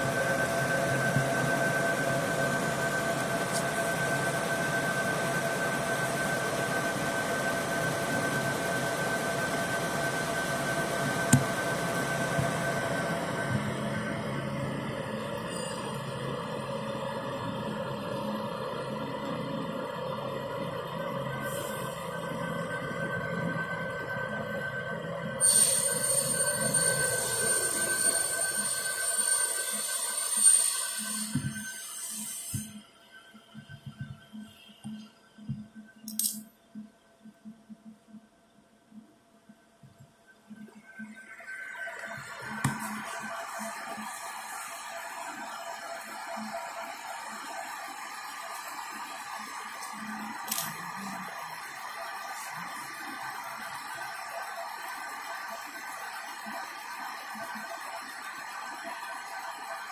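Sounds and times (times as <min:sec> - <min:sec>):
laser machine hum and hiss: 0:00.0 - 0:36.3, 0:40.3 - 0:59.9
steady whining tones: 0:00.0 - 0:59.9
laser machine hiss and hum: 0:25.4 - 0:35.6.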